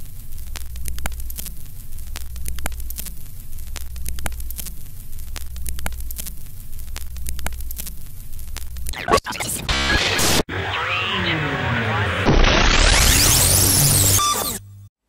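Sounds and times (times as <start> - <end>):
film crackle: 0.0 - 9.0
sharp clicks: 0.5 - 9.0.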